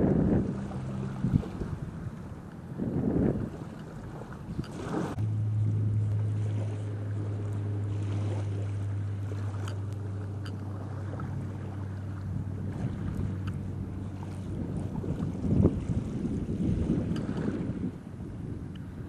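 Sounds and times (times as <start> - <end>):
small motor humming: 0.0 - 19.0
wind: 0.0 - 19.0.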